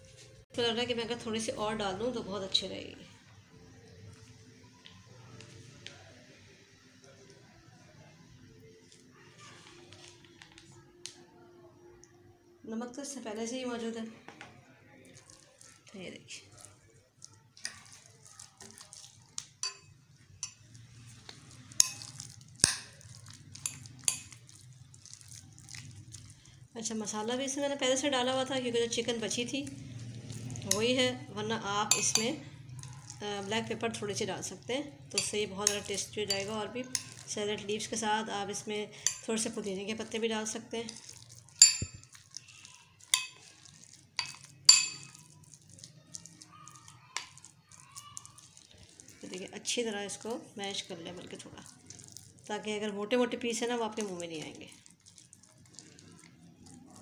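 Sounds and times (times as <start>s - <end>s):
spoon stirring and squishing: 0.0s - 0.5s, 1.4s - 11.2s, 13.8s - 57.0s
spoon clinking against glass: 19.6s - 20.8s, 21.7s - 24.6s, 31.9s - 33.0s, 35.1s - 37.3s, 39.0s - 39.3s, 41.0s - 42.3s, 43.0s - 45.6s.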